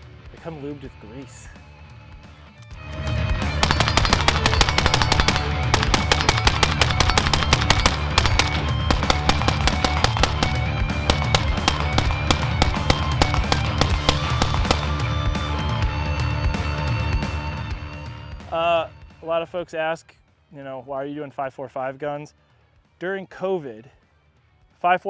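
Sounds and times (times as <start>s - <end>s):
loud rock music: 0.0s - 19.5s
suppressed rifle rapid fire: 3.6s - 15.2s.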